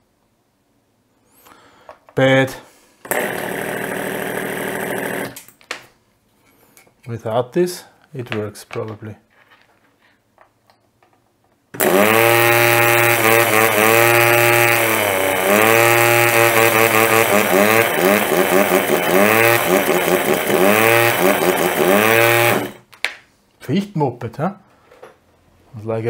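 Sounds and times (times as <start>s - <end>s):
air compressor running rough: 3.0s - 5.4s, 11.8s - 22.8s.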